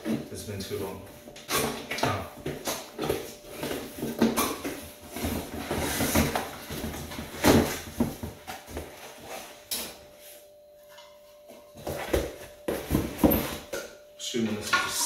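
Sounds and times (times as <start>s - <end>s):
cardboard flaps scraping and rustling: 2.5s - 9.6s.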